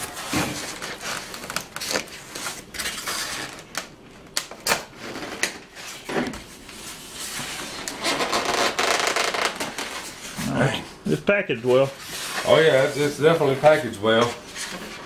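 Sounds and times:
foam rubbing and creaking: 6.9s - 10.8s.

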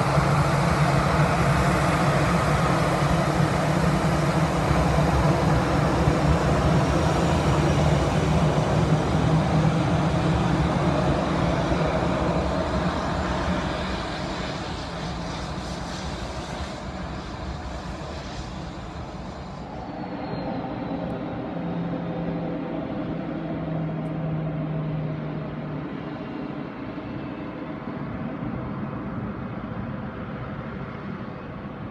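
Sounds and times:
jet engines taxiing: 0.0s - 31.9s.

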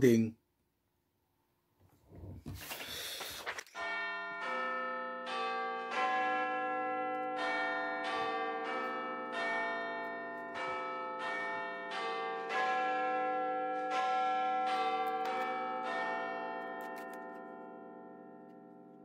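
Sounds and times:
card rustling: 2.4s - 3.8s.

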